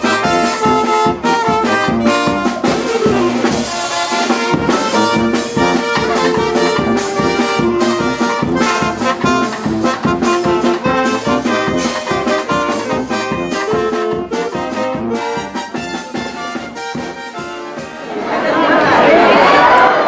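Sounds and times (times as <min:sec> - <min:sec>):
brass band playing: 0:00.0 - 0:20.0
falling brass slide: 0:02.0 - 0:15.8.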